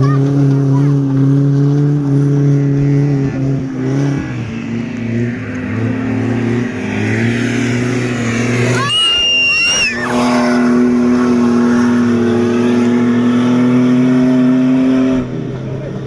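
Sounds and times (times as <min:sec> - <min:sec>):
race vehicle engine at high revs: 0:00.0 - 0:16.0.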